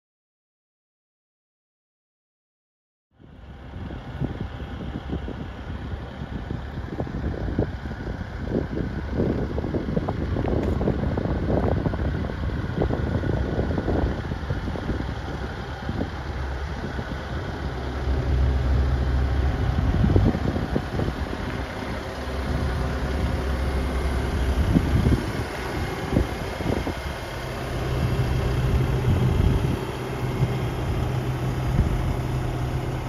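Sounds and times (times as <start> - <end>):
excavator diesel engine idling: 3.2 - 33.0
wind buffeting microphone: 3.3 - 33.0.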